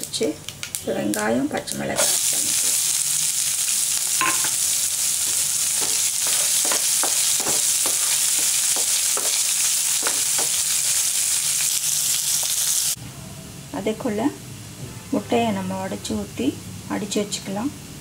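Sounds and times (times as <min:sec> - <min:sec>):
onion sizzling in hot oil: 0:00.0 - 0:13.0
wooden spatula scraping pan: 0:05.8 - 0:10.6.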